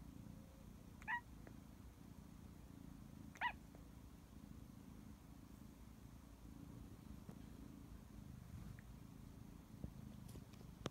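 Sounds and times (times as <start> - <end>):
faint low hum: 0.0 - 10.9
kitten chirping: 1.0 - 1.3, 3.3 - 3.7.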